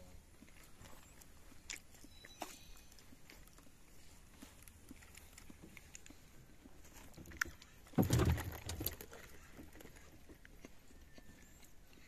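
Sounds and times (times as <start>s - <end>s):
dull thump on a boat: 7.9s - 8.9s.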